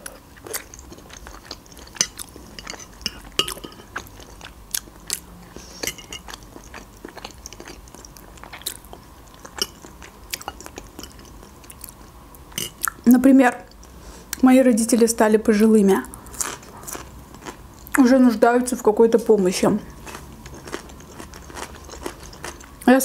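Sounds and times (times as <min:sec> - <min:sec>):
person chewing food: 0:00.0 - 0:13.0, 0:16.1 - 0:18.0, 0:19.9 - 0:22.9.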